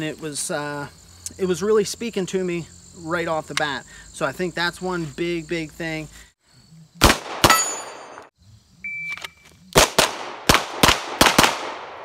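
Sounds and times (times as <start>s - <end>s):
pistol shots: 7.0s - 8.3s, 9.8s - 12.0s
steel targets ringing: 7.5s - 8.2s.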